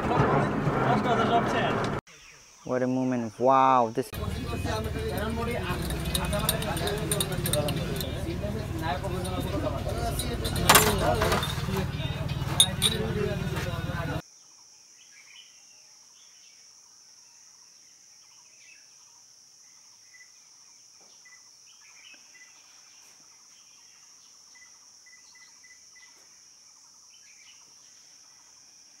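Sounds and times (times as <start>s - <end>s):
bird chirps: 19.7s - 26.3s.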